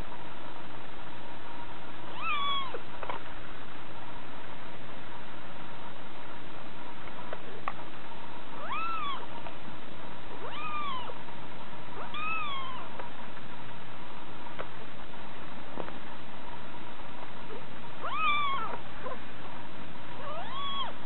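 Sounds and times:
steady background hiss: 0.0 - 21.0
kitten meowing: 2.1 - 2.8, 8.6 - 9.3, 10.4 - 11.2, 12.0 - 13.0, 18.0 - 19.2, 20.2 - 21.0.

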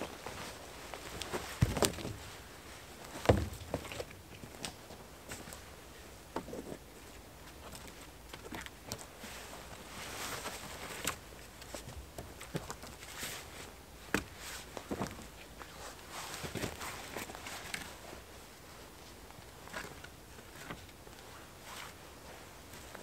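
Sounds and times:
wooden poles knocking: 3.2 - 4.0.

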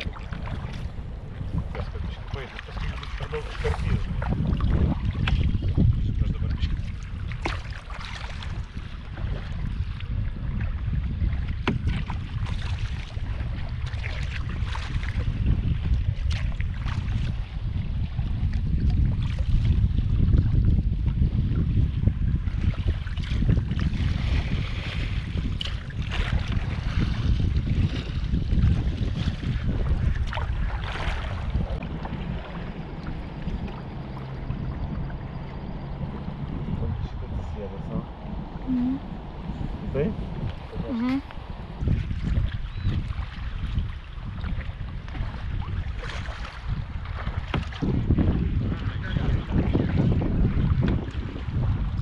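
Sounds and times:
paddles splashing in water: 0.0 - 5.9, 6.5 - 10.0, 10.6 - 20.2, 22.4 - 52.0
wind buffeting microphone: 0.0 - 52.0
low steady hum: 30.6 - 41.8.

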